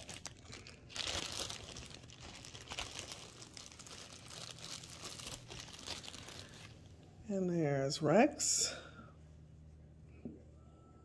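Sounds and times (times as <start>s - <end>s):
plastic bag crinkling: 0.0s - 6.8s.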